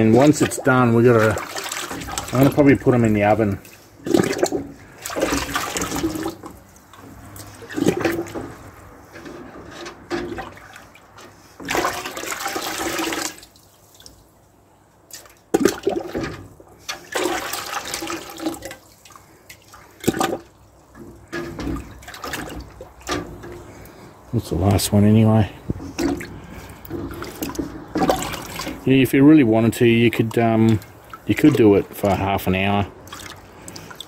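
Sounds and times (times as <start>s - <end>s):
slurry sloshing in metal pail: 0.0s - 14.4s, 15.0s - 34.0s.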